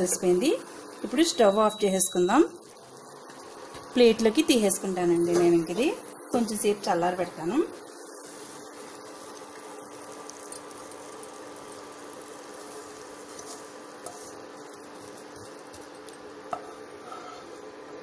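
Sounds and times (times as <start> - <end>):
spatula scraping a pan: 12.7 - 14.4, 16.5 - 17.6.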